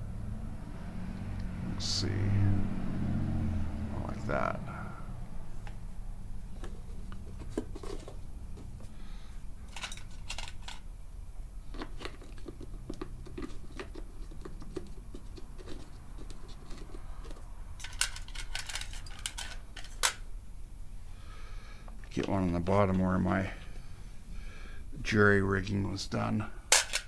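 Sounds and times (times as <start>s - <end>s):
plastic cover clicks and scrapes: 11.7s - 20.2s.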